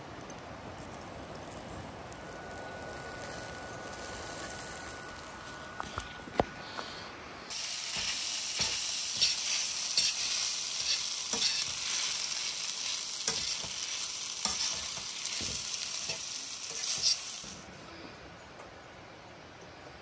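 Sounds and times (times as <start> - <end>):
food sizzling in a pan: 1.5 - 6.1, 7.5 - 17.7.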